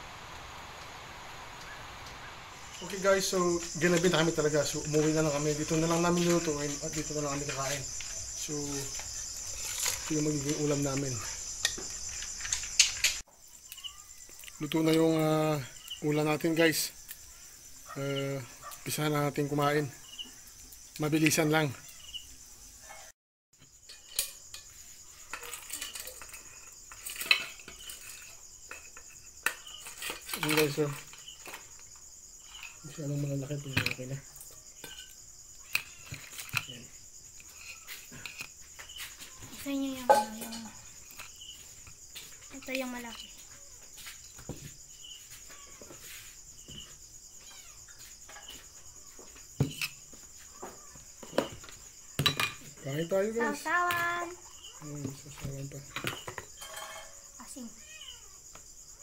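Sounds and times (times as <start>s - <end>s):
crickets chirring: 0.0s - 59.0s
dishes and pot clinking: 40.1s - 40.7s, 51.3s - 52.7s, 55.9s - 57.2s.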